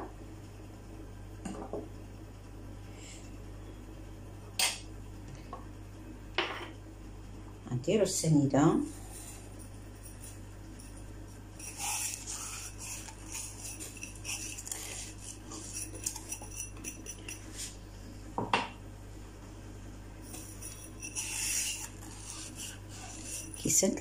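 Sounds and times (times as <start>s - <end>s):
sugar pouring: 11.6s - 17.7s, 20.3s - 23.7s
glass clinking: 15.8s - 17.5s.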